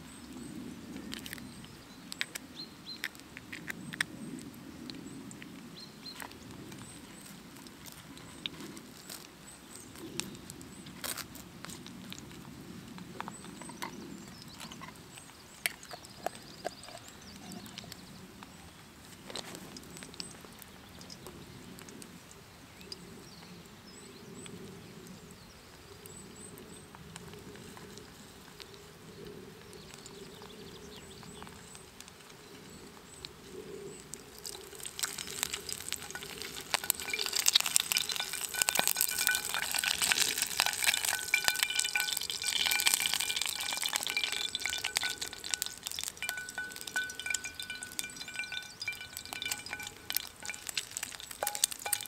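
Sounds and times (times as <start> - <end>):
low outdoor background: 0.0 - 52.0
tins and utensils clicking: 34.5 - 52.0.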